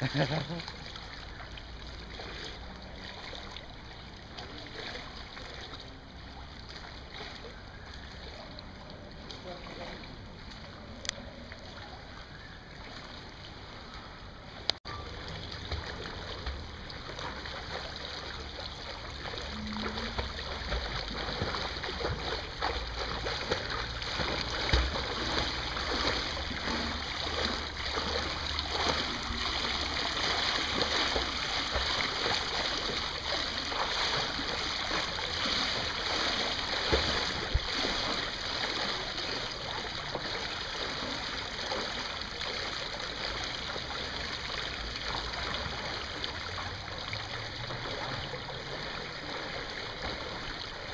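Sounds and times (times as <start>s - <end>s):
pool water splashing: 0.0s - 50.9s.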